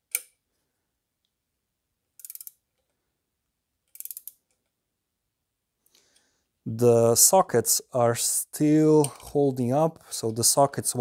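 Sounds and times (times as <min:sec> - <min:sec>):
ratcheting torque wrench clicking: 0:02.2 - 0:02.6, 0:03.9 - 0:04.4.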